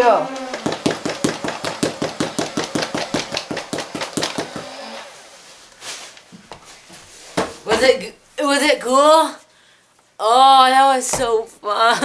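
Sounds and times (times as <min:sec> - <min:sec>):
dart blaster firing rapidly: 0:00.5 - 0:04.7.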